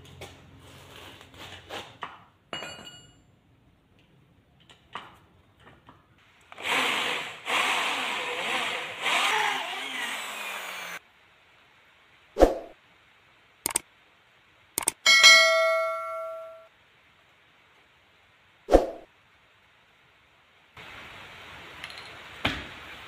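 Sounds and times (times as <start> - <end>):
electric drill boring through metal: 6.5 - 11.0
short metallic ring: 15.0 - 16.7.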